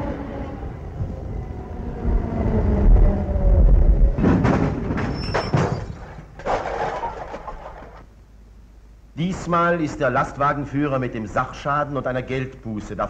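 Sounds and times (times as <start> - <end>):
tram running with whine: 0.0 - 9.2
tram crashing into lorry: 2.9 - 8.1
bangs: 4.1 - 8.0
crates clattering onto cobbles: 4.2 - 8.1.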